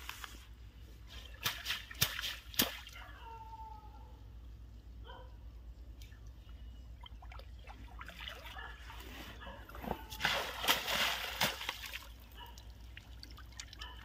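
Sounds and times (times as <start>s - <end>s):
water splashing in mud: 1.1s - 3.0s, 9.8s - 13.9s.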